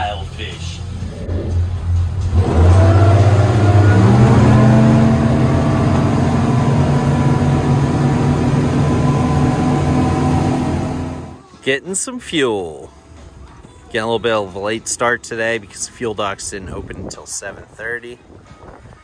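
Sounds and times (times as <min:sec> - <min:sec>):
outboard engines throttling up: 0:00.6 - 0:11.4
water rushing: 0:02.3 - 0:11.4.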